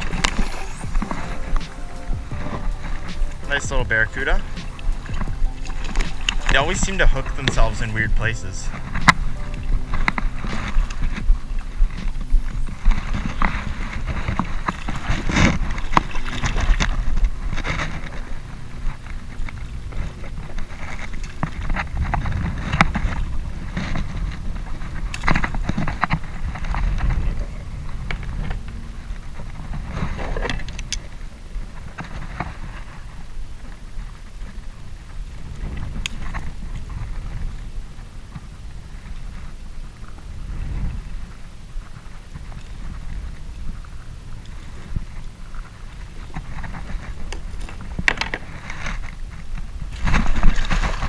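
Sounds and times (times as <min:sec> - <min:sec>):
fish splashing in water: 0:00.0 - 0:18.3
wind rumble on microphone: 0:00.0 - 0:51.0.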